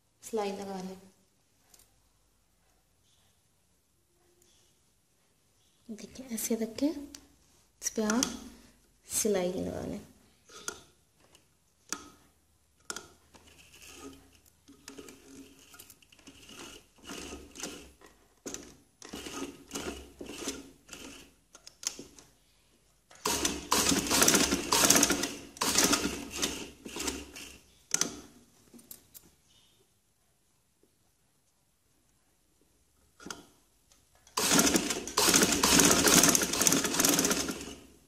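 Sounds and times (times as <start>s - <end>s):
sewing machine stitching: 12.9s - 21.4s, 23.2s - 28.3s, 34.3s - 38.0s.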